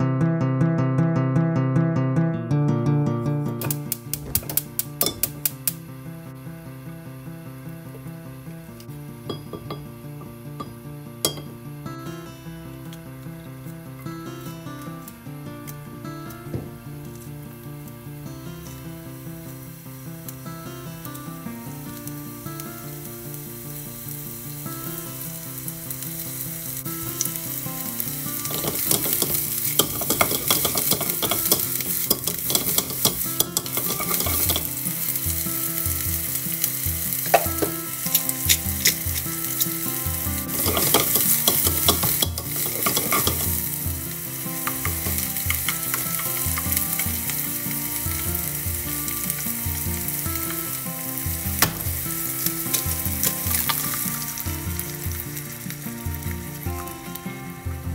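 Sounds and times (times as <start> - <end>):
mushrooms sizzling in oil: 3.5 - 57.9
chopsticks stirring in a pan: 27.2 - 50.7.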